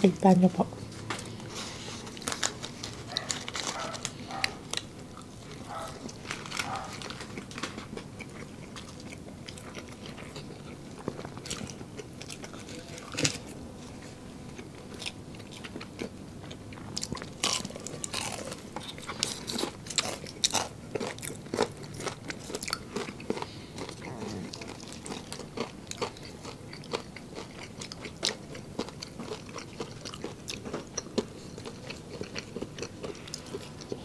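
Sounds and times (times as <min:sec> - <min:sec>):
crunchy bites of fried chicken: 0:16.8 - 0:33.8.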